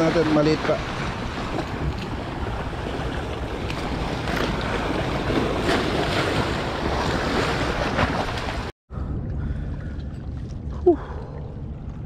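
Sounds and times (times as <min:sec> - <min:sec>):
waves splashing over rocks: 0:00.0 - 0:08.7
wind rumbling on microphone: 0:00.0 - 0:12.0.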